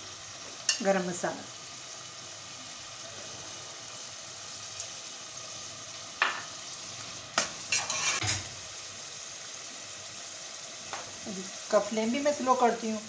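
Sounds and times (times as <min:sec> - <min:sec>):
curry sizzling in a pot: 0:00.0 - 0:13.0
ladle scraping a pot: 0:07.7 - 0:08.5.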